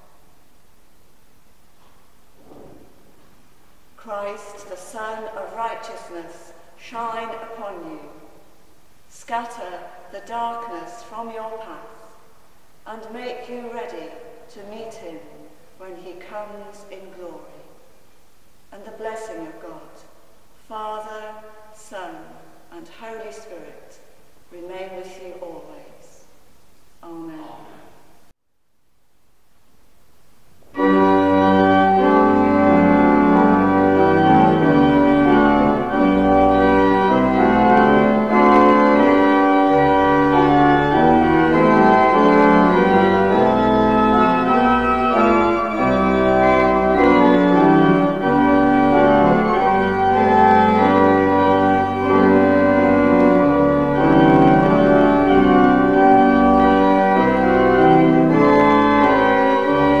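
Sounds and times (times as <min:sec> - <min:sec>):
pipe organ playing chords: 0:30.6 - 1:00.0.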